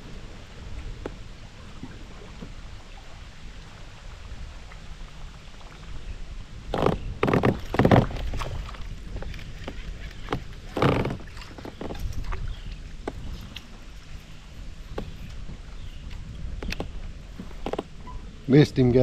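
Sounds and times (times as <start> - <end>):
water splashing: 6.7 - 18.0.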